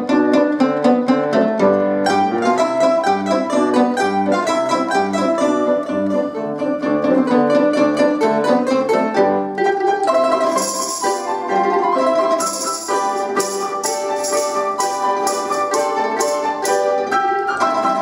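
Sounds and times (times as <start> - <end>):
piano accompaniment: 0.0 - 18.0
plucked domras playing folk tune: 0.0 - 18.0
tambourine jingling: 10.5 - 11.4, 12.4 - 16.9.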